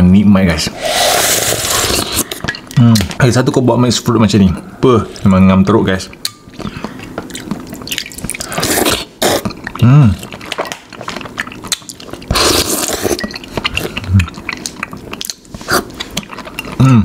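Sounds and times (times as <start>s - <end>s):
slurping and chewing: 0.8s - 3.2s, 6.2s - 17.0s
person humming: 16.8s - 17.0s.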